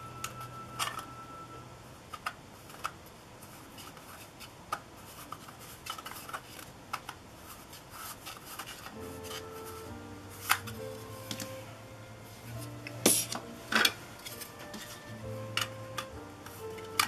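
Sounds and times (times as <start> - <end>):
plastic rubbing on plastic: 2.5 - 11.7.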